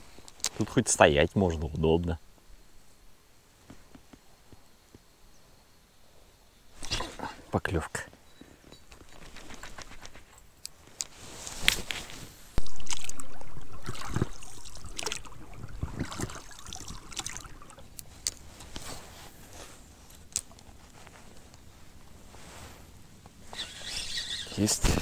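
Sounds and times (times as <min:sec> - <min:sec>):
water sloshing around boat: 0:12.6 - 0:17.9.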